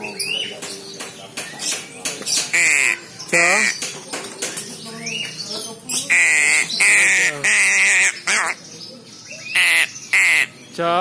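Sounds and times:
crow chick squawking: 2.4 - 3.8, 6.0 - 8.6, 9.5 - 10.6.

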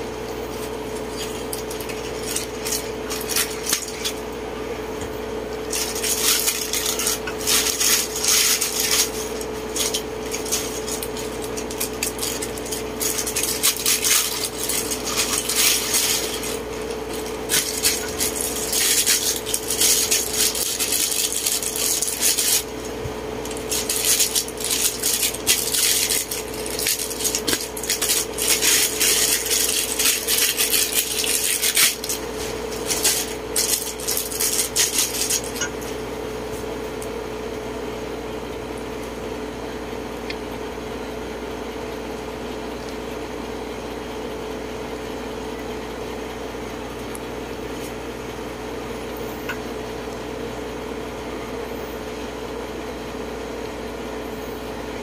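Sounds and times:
steady hum: 0.0 - 55.0
plastic bags crinkling: 0.5 - 4.2, 5.6 - 36.6
plastic parts clattering: 5.7 - 9.2, 9.8 - 16.6, 23.5 - 35.7.

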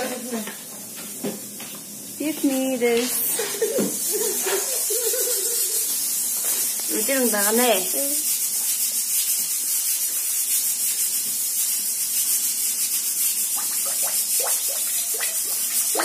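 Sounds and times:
wood fire hissing and crackling: 0.0 - 16.0
person speaking: 6.9 - 8.2.

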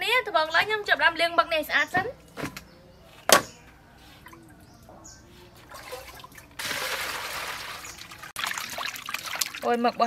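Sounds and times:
hands sloshing water: 5.7 - 9.8
water pouring into metal bowl: 5.7 - 10.0.

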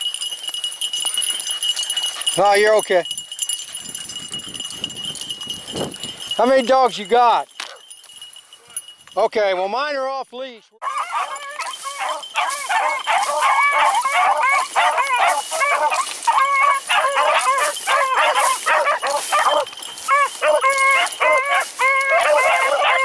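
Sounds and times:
hounds baying: 1.0 - 2.8, 7.6 - 9.0, 10.8 - 23.0.

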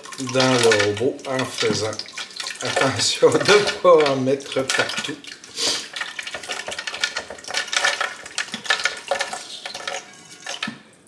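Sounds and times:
nuts poured into blender jar: 6.4 - 10.7.

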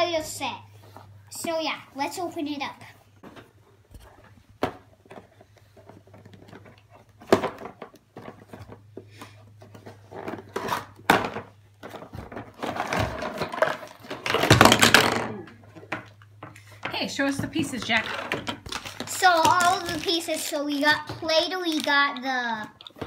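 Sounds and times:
plastic toys clattering onto table: 10.1 - 16.2.

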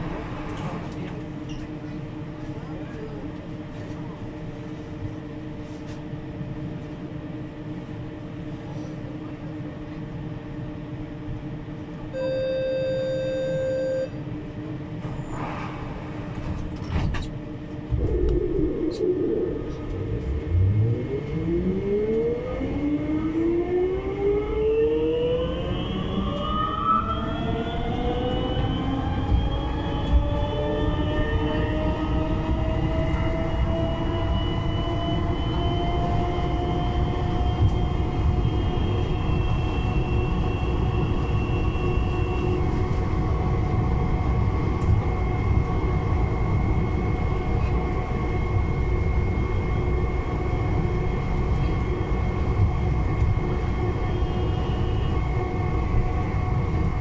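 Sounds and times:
metro equipment hum: 0.0 - 57.0
warning tone: 12.1 - 14.2.

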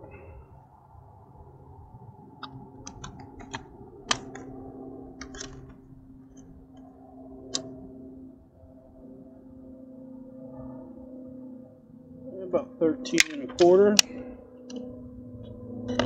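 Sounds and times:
steady low hum: 0.0 - 16.0
gear clicking and tapping: 2.4 - 4.5, 5.2 - 6.9.

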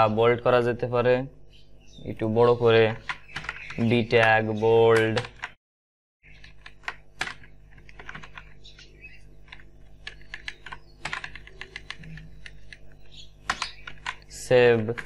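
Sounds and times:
keyboard typing: 3.0 - 4.3, 6.3 - 15.0
faint steady hum: 6.2 - 15.0.

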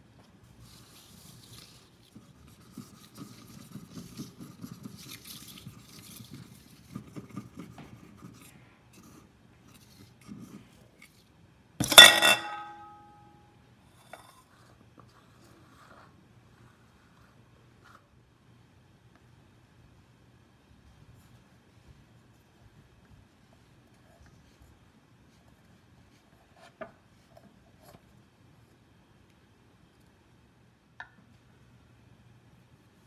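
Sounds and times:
metal pan clanging: 11.8 - 13.2.

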